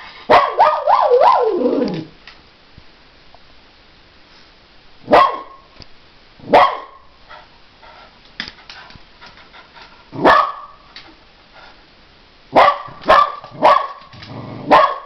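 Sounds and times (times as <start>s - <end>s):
dog barking: 0.3s - 1.6s, 5.1s - 5.7s, 6.4s - 7.0s, 10.2s - 10.8s, 12.5s - 15.0s.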